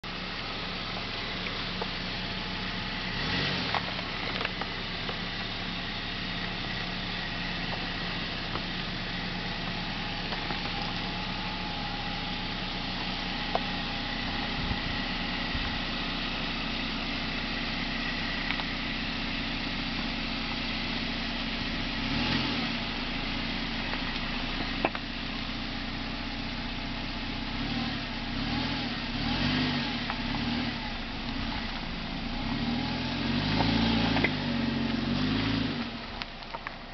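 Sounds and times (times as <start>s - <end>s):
car engine running at low revs: 0.0s - 36.9s
stones knocking under tyres: 0.7s - 2.7s, 3.4s - 11.6s, 12.4s - 14.6s, 23.8s - 25.2s, 33.3s - 34.4s, 35.8s - 36.9s.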